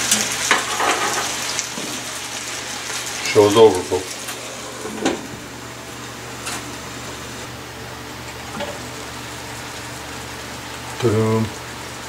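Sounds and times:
food frying under lid: 0.0 - 12.0
iron lid clanking on skillet: 0.1 - 1.9.

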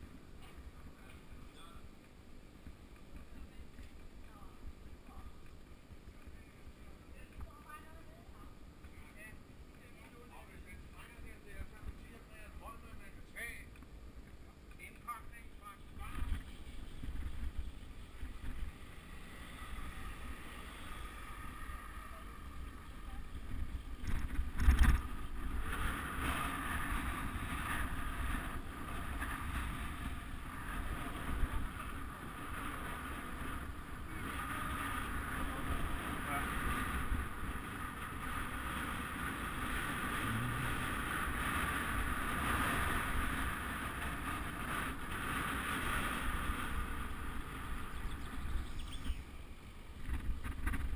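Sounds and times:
wind rushing over microphone: 16.0 - 50.9
tyre noise on asphalt: 16.1 - 50.9.

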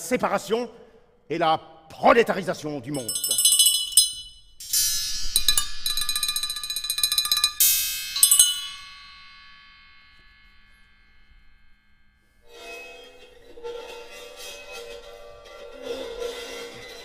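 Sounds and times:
metal percussion roll ringing: 3.0 - 17.0
low sustained multi-tone sound: 4.0 - 17.0.

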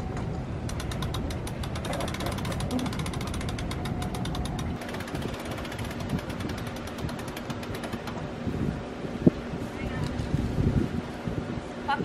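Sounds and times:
low mechanical rumble: 0.0 - 12.0
winch ratchet clicking: 0.6 - 8.2.

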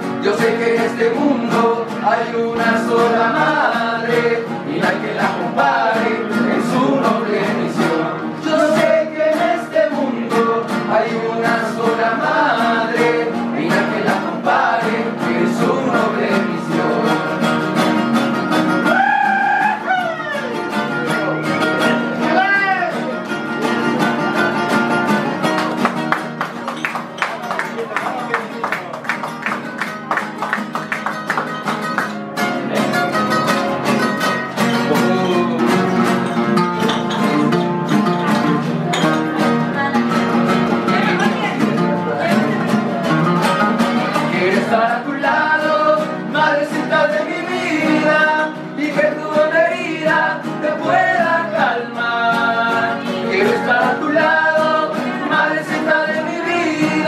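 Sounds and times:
people singing: 0.0 - 18.0, 40.7 - 57.0
acoustic guitars strumming: 0.0 - 57.0.

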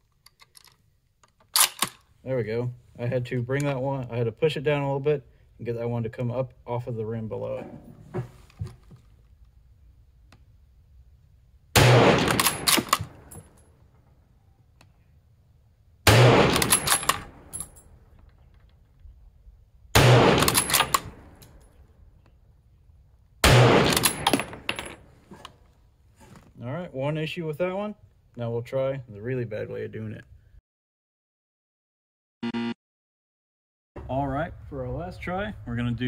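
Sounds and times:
rifle bolt metallic clicks: 0.1 - 2.1, 12.2 - 13.6, 16.5 - 18.8, 20.3 - 21.7
rifle shots: 11.8 - 13.3, 16.1 - 17.5, 20.0 - 21.4, 23.4 - 24.8.

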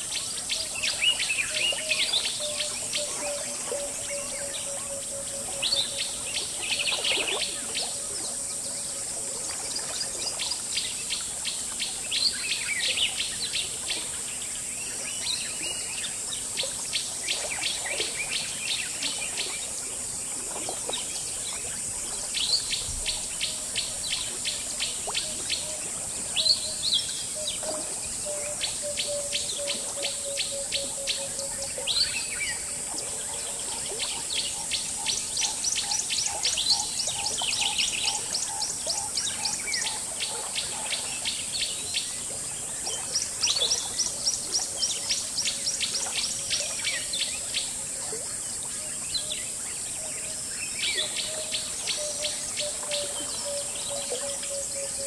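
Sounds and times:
rapid insect chirping: 15.2 - 55.0.

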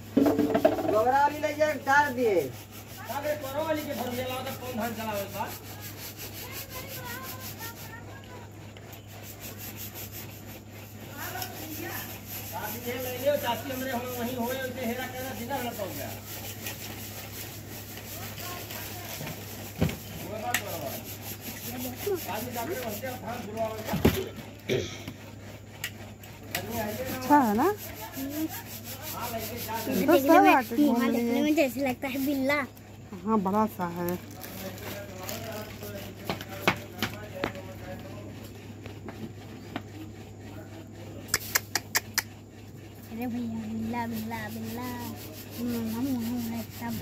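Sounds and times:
knocks: 0.1 - 1.0
phone rubbing against dog fur: 0.2 - 47.0.

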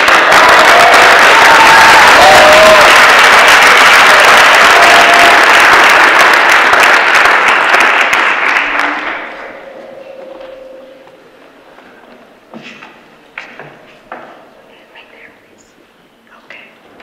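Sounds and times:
large audience applauding: 0.0 - 9.8.

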